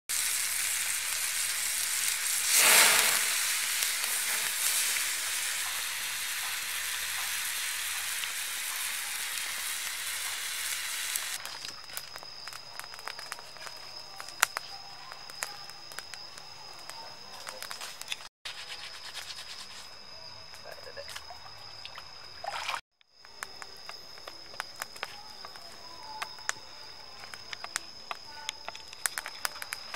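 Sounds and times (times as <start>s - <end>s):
meat and vegetables sizzling: 0.1s - 18.1s
twig fire crackling and popping: 0.1s - 18.3s, 23.1s - 29.9s.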